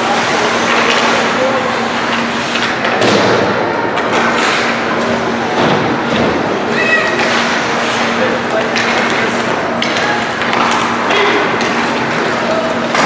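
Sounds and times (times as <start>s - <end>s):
hockey sticks and puck clacking: 0.0s - 6.4s, 7.0s - 13.0s
crowd noise: 0.0s - 13.0s
skates on ice: 4.0s - 5.0s.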